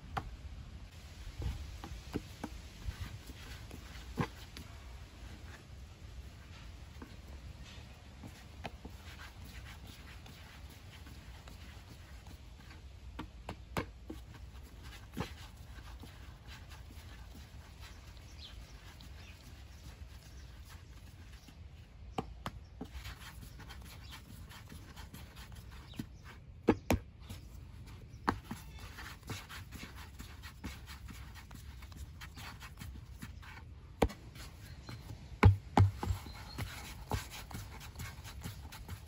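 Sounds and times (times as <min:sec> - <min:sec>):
hands rubbing and pressing dough: 0:01.3 - 0:39.0
sharp taps on wooden board: 0:35.4 - 0:36.2.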